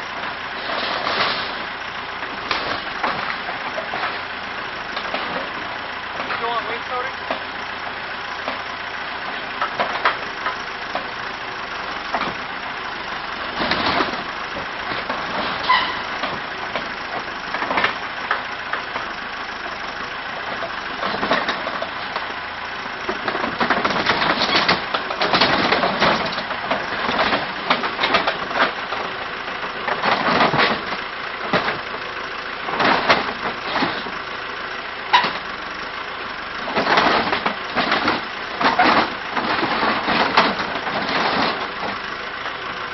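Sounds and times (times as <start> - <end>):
backhoe engine running: 0.0 - 42.9
wood cracking and splintering: 23.1 - 32.0, 36.6 - 42.0.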